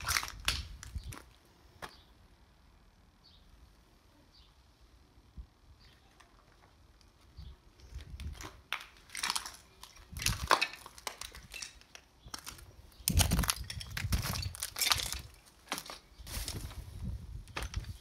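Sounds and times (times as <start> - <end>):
footsteps crunching on glass and rubble: 0.0 - 2.0, 7.8 - 18.0.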